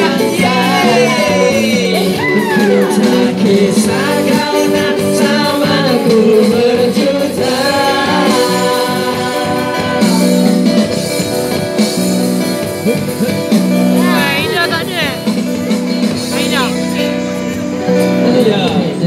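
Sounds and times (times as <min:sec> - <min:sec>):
woman singing: 0:00.0 - 0:06.6, 0:07.4 - 0:10.6
men singing: 0:00.0 - 0:11.5, 0:17.9 - 0:19.0
electric and acoustic guitar: 0:00.0 - 0:19.0.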